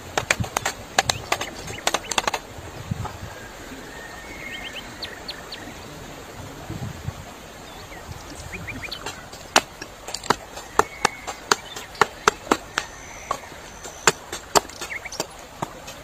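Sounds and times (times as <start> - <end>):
hatchet chopping wood: 0.0 - 2.4, 9.0 - 16.0
stream running: 0.0 - 16.0
bird chirps: 0.4 - 2.4, 3.3 - 6.0, 7.6 - 15.9.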